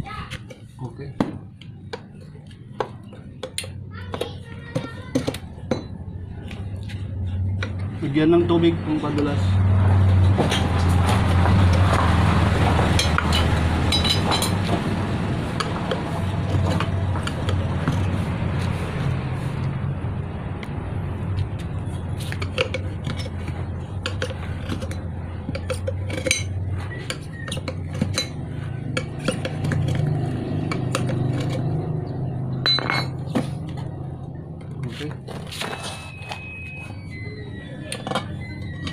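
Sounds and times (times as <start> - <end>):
low mechanical hum: 0.0 - 38.9.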